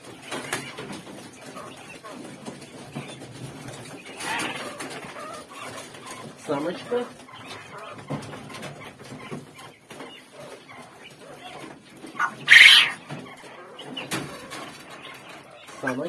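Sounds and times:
rustling and knocks in cages: 0.0s - 16.0s
quail crying: 3.9s - 16.0s.

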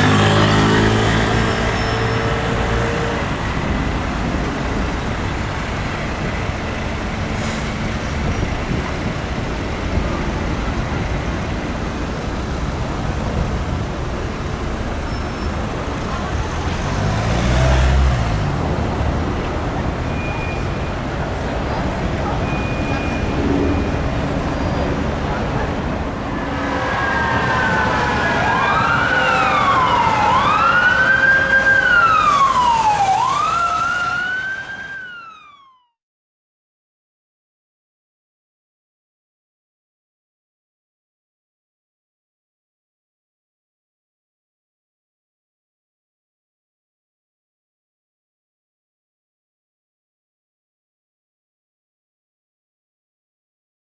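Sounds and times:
road traffic rumble: 0.0s - 35.7s
emergency siren wailing: 19.8s - 36.0s.

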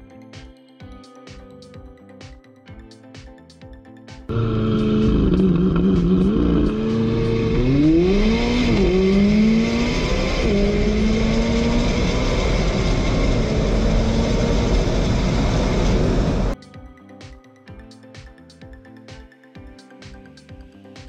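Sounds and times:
car engine revving and accelerating: 4.3s - 16.6s.

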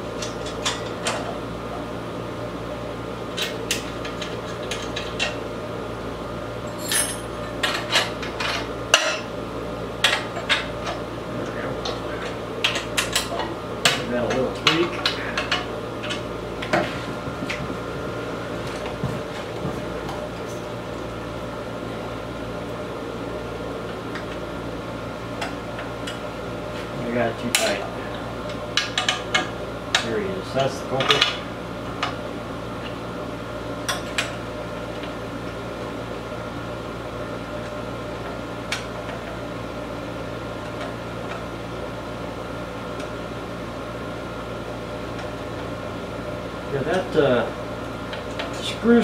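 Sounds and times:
air conditioner hum: 0.0s - 49.0s
metal tools clinking and scraping: 6.7s - 8.6s.

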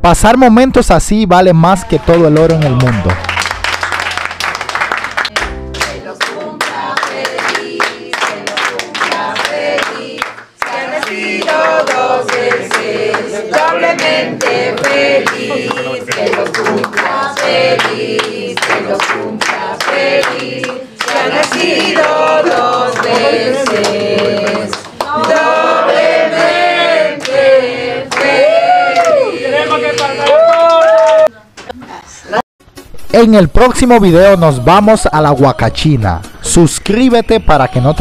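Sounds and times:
people clapping: 1.7s - 31.3s
group singing: 5.4s - 30.2s.

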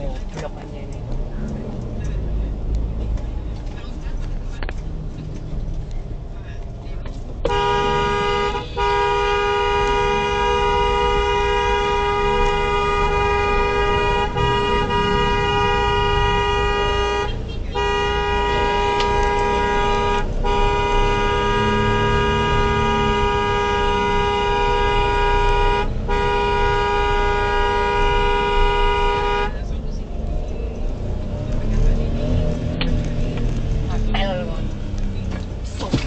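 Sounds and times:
road and engine rumble: 0.0s - 36.0s
two-tone car horn honking: 7.4s - 29.7s.

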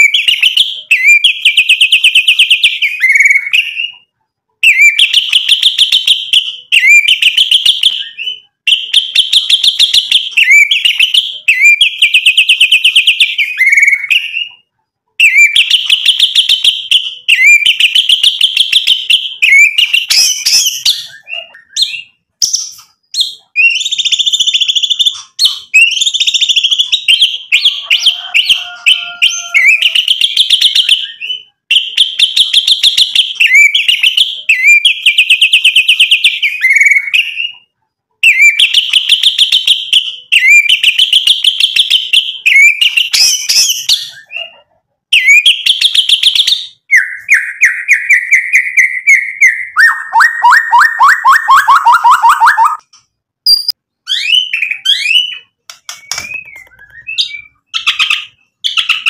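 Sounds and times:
songbird singing trills: 53.5s - 59.0s.

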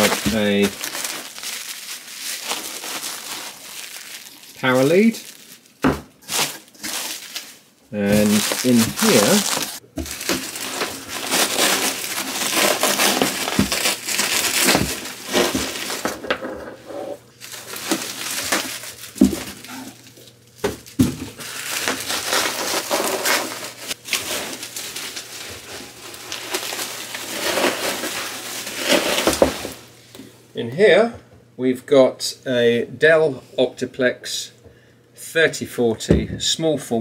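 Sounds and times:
bubble wrap crinkling: 0.0s - 16.4s, 17.3s - 30.2s.

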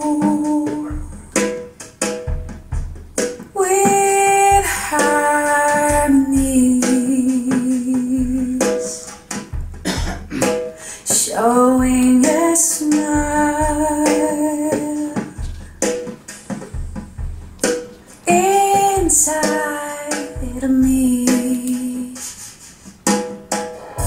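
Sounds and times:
woman singing jazz: 0.0s - 1.5s, 3.5s - 9.2s, 10.9s - 15.5s, 18.2s - 22.5s.

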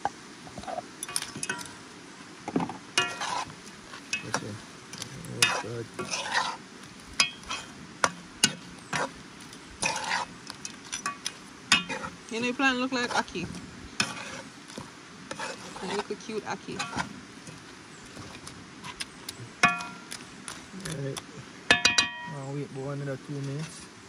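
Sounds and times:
frying sizzle: 0.0s - 24.0s
utensil scraping a pan: 3.0s - 20.8s.

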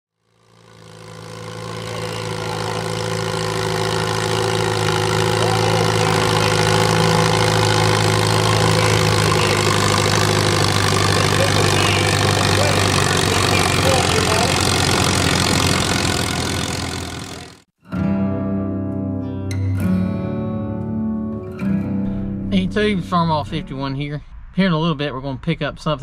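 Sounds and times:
tractor engine under load: 0.1s - 17.7s.

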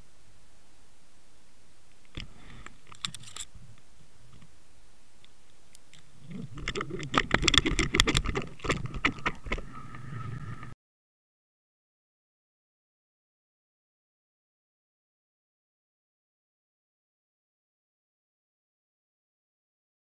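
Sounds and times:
steady hiss: 0.0s - 7.2s.

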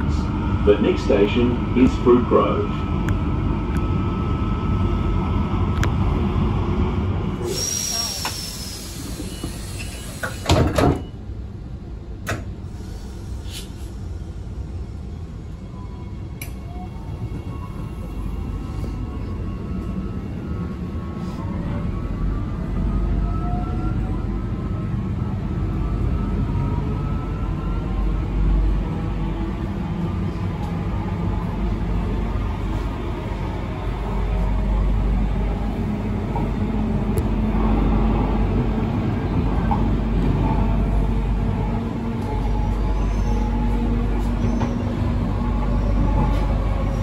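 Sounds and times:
faint train whine: 0.0s - 47.0s
train running low rumble: 0.0s - 47.0s
sliding doors thudding shut: 10.2s - 11.1s.

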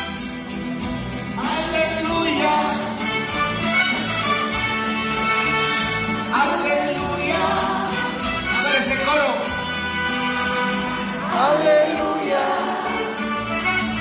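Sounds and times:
bass guitar: 0.0s - 14.0s
strummed guitars: 0.0s - 14.0s
violins playing melody: 2.9s - 6.5s, 7.2s - 11.4s, 12.4s - 14.0s.

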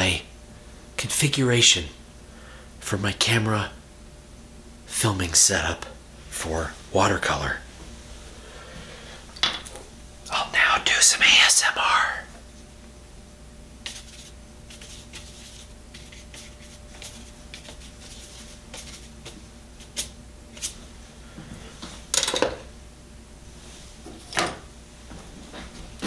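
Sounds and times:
paintbrush tapping and scratching paper: 13.8s - 20.8s.

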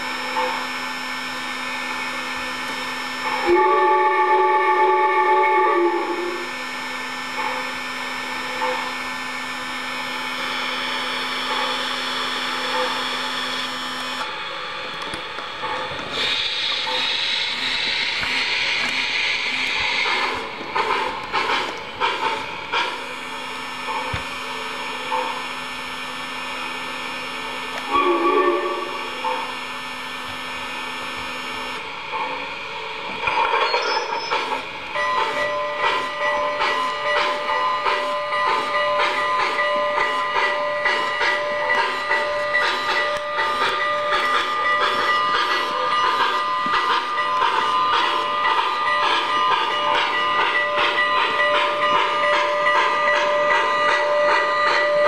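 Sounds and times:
model train hissing whir: 0.0s - 55.0s
rhythmic steam chuffing: 0.0s - 55.0s
steam whistle: 2.7s - 7.2s, 27.6s - 31.8s
steam hiss from speaker: 16.1s - 25.4s.

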